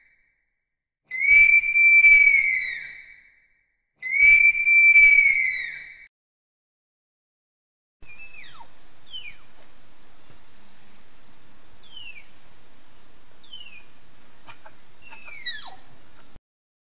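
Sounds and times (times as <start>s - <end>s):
tapir whistling: 1.1s - 3.0s, 4.0s - 6.0s, 8.0s - 9.5s, 11.8s - 12.3s, 13.4s - 13.9s, 15.0s - 15.8s.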